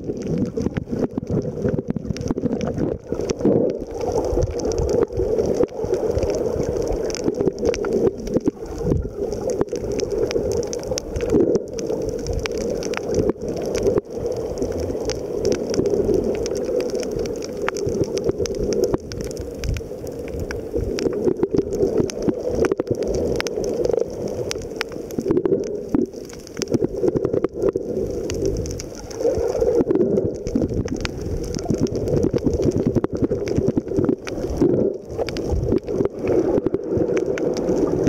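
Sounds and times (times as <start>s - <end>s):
muffled underwater churning rumble: 0.0s - 38.0s
small clicks and crackles: 0.0s - 38.0s.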